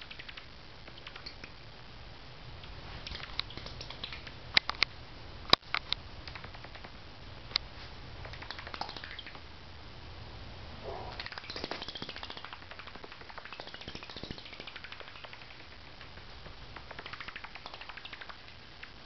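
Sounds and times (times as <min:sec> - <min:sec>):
bat squeaking and clicking: 0:00.0 - 0:01.6, 0:03.1 - 0:04.9, 0:08.2 - 0:09.5, 0:10.8 - 0:19.0.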